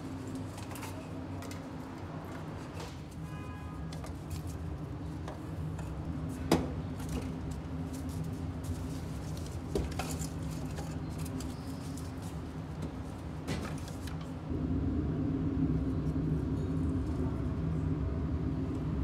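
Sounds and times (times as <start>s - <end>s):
steady low hum: 14.0s - 19.0s.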